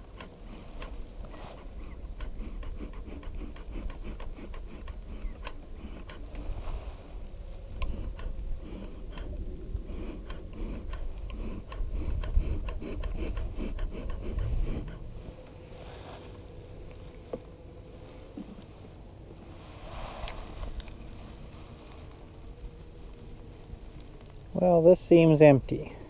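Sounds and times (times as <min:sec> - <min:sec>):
low rumble: 0:00.0 - 0:26.0.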